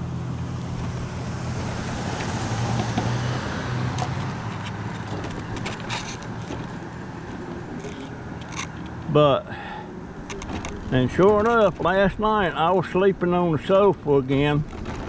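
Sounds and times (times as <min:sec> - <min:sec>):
scooter motor humming: 0:00.0 - 0:11.9
car passing: 0:00.0 - 0:13.2
tyres on gravel: 0:00.0 - 0:15.0
clicks and rattles from bumps: 0:03.9 - 0:09.1, 0:10.2 - 0:12.2, 0:13.8 - 0:15.0.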